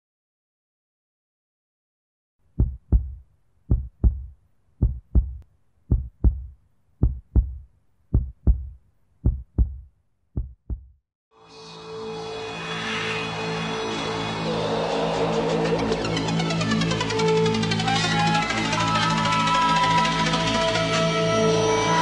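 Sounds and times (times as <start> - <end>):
heartbeat thumps: 2.5 - 11.0.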